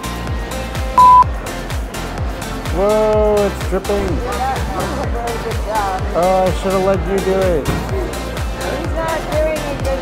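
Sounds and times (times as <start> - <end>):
background music with steady beat: 0.0 - 10.0
short loud beep: 1.0 - 1.3.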